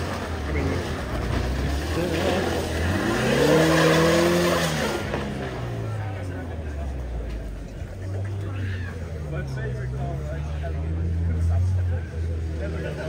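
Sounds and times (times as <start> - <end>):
car engine revving hard: 0.0 - 6.4.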